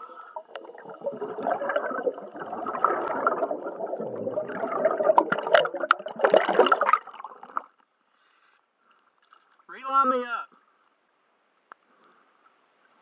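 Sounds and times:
underwater air bubbling: 0.0 - 7.8.

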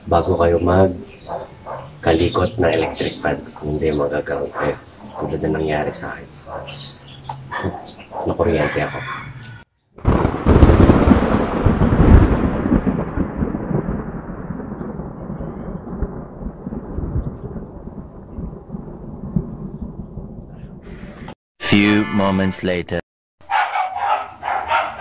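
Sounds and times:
rolling thunder rumble: 10.0 - 21.4
thunderclap: 10.0 - 21.4.

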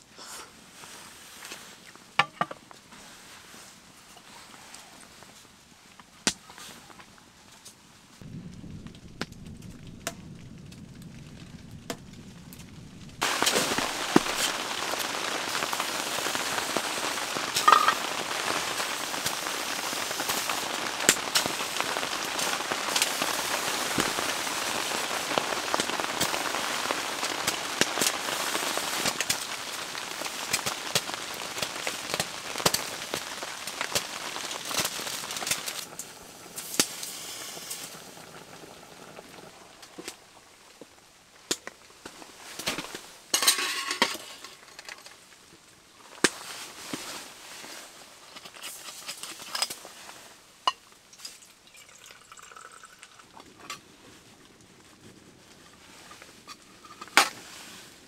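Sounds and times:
food sizzling in a metal pot: 13.2 - 36.0, 43.3 - 44.5.

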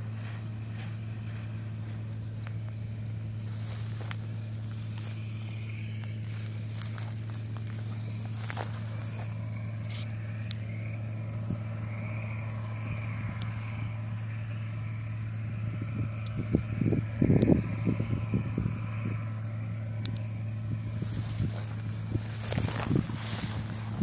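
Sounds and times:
distant combine harvester engine droning: 0.0 - 24.0
wind buffeting microphone: 15.5 - 19.7, 20.3 - 24.0.

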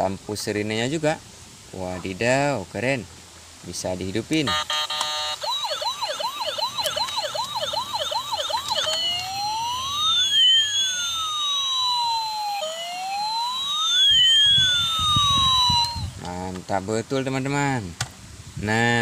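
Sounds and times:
toy electronic siren: 4.5 - 16.2.

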